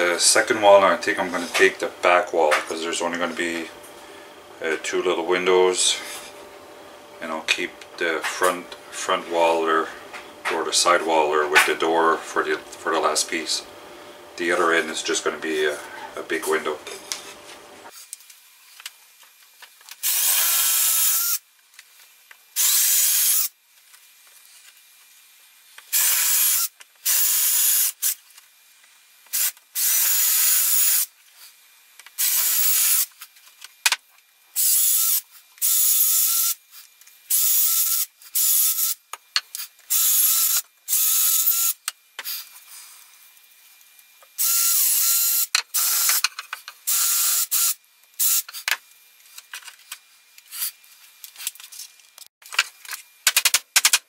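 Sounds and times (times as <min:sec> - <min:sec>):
cordless drill boring wood: 0:20.0 - 0:21.4, 0:22.6 - 0:23.5, 0:25.9 - 0:28.2, 0:29.3 - 0:31.1, 0:32.2 - 0:33.1, 0:34.6 - 0:36.6, 0:37.3 - 0:39.0, 0:39.9 - 0:41.8, 0:44.4 - 0:48.6.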